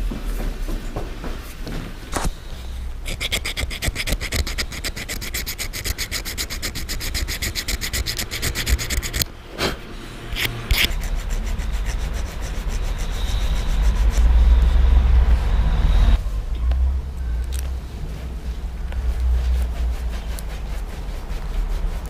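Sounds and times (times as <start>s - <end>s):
file scraping metal: 3.0s - 9.3s, 10.2s - 14.5s
low rumble: 9.1s - 22.0s.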